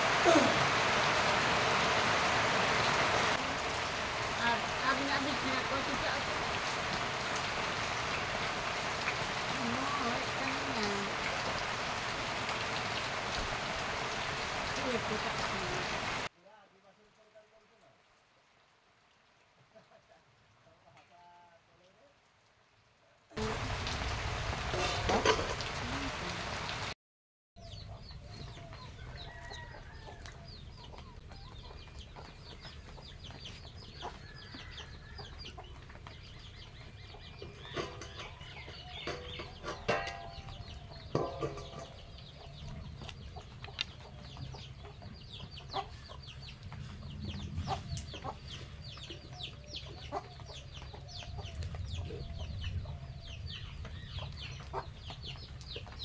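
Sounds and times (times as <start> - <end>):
chickens clucking: 27.6 - 56.0.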